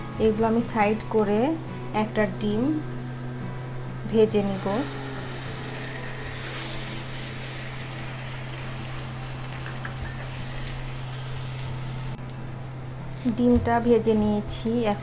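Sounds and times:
steady low hum: 0.0s - 13.1s
egg sizzling in oil: 2.7s - 13.2s.

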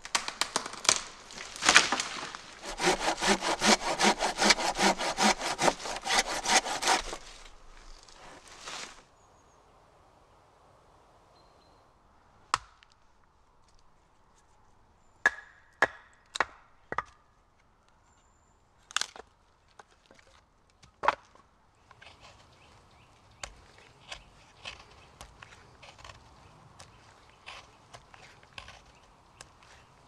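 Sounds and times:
knife shaving wood: 1.3s - 8.9s, 21.9s - 22.8s, 23.4s - 30.0s
knife batoned through log: 2.6s - 7.6s.

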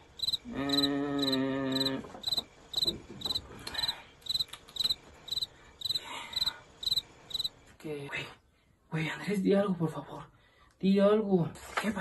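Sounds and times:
cricket chirping: 0.0s - 7.6s.

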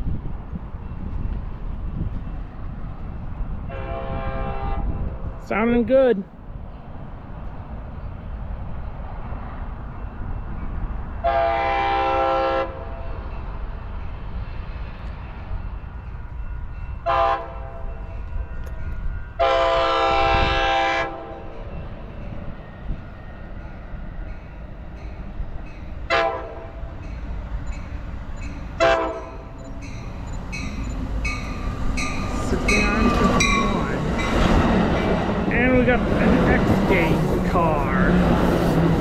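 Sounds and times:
train horn blasts: 3.7s - 5.2s, 11.2s - 13.1s, 17.0s - 18.0s, 19.4s - 21.5s, 26.1s - 26.9s, 28.8s - 29.6s.

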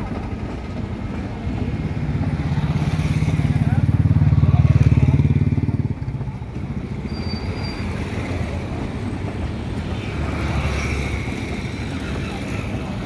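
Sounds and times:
train coaches rumbling past: 0.0s - 13.0s.

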